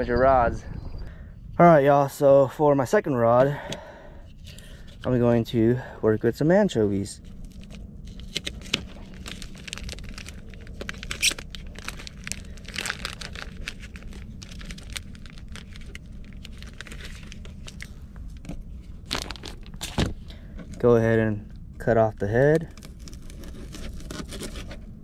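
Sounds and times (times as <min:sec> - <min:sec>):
plastic wrap crinkling and tearing: 0:07.2 - 0:20.2, 0:22.5 - 0:25.0.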